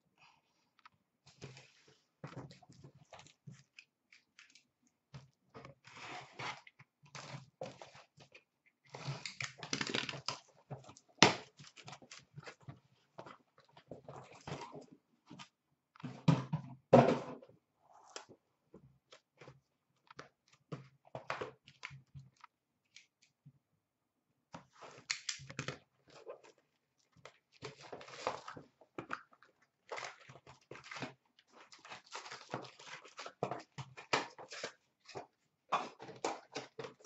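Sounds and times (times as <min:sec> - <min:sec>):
packaging tearing and rustling: 0:09.0 - 0:10.4.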